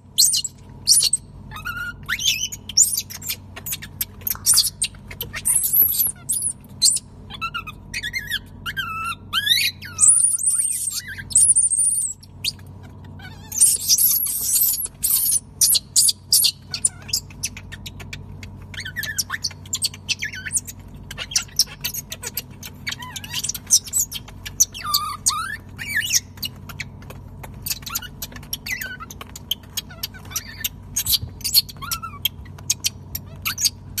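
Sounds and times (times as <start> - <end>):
faint steady hum: 0.0 - 34.0
infant monkeys squealing: 0.2 - 26.8, 27.6 - 34.0.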